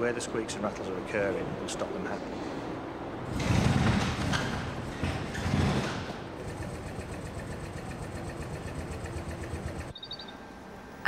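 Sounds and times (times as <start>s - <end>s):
steady hum: 6.2s - 11.0s.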